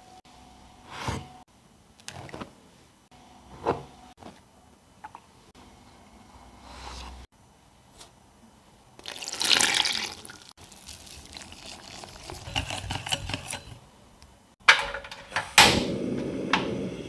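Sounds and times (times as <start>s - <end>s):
water pouring into bowl: 9.0s - 12.5s
whisk stirring in glass bowl: 11.2s - 13.8s
gas flame hiss: 15.2s - 17.0s.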